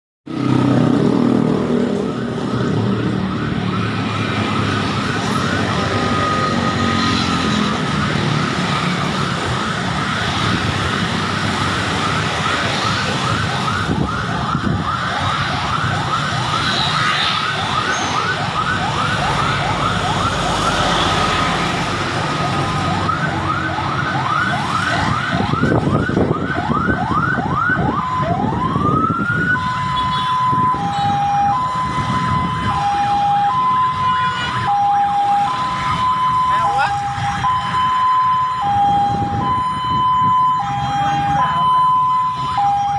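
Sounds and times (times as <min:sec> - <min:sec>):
emergency vehicle siren: 0:00.3 - 0:42.9.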